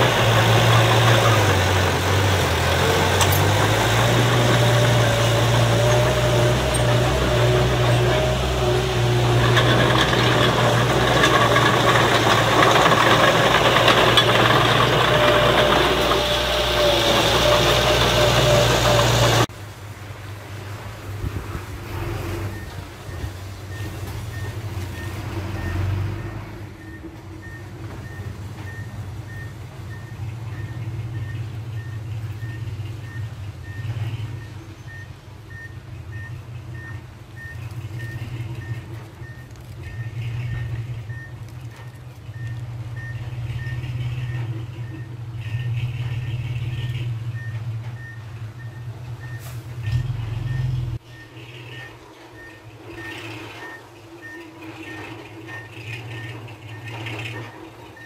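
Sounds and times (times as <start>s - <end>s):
diesel engine running: 0.0s - 58.0s
reversing alarm beeps: 47.3s - 58.0s.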